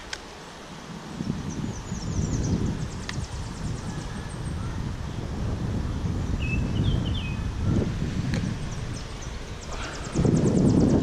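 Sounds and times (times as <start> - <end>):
wind buffeting microphone: 0.0 - 11.0
faint high ticks: 3.0 - 3.3.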